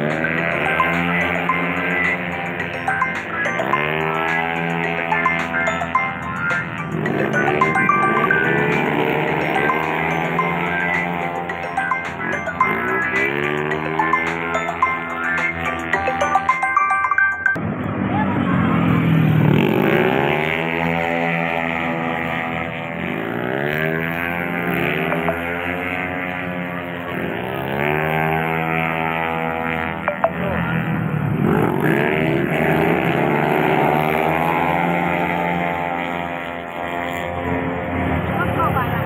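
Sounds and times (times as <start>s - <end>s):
racing motorcycles revving past: 18.5s - 30.0s, 30.6s - 39.0s.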